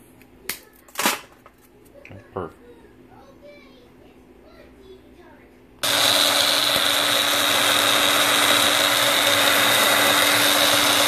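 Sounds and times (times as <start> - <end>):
blender motor whirring: 5.8 - 11.0.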